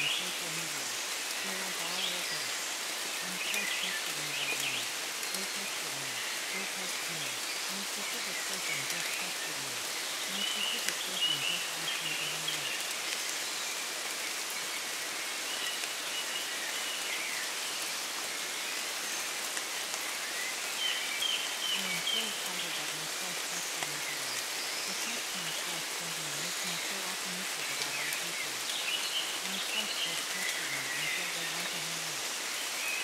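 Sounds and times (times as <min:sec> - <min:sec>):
faint low voice murmuring: 0:00.0 - 0:12.8, 0:21.7 - 0:28.7, 0:29.4 - 0:32.3
steady rain falling: 0:00.0 - 0:33.0.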